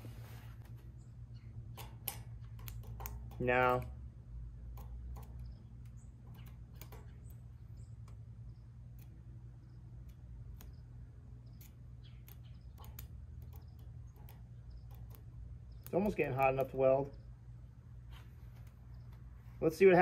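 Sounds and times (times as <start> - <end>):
steady low hum: 0.0 - 20.0
welding rod clicking on steel: 1.7 - 4.0, 4.6 - 16.9.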